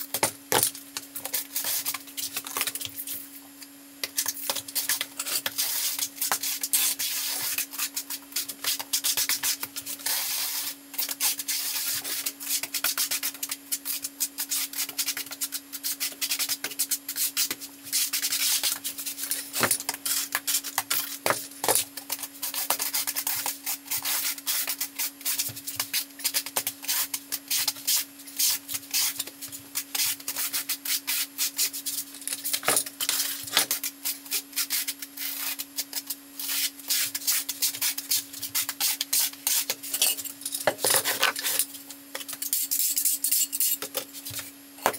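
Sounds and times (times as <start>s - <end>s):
trowel scraping mortar: 4.8s - 44.4s.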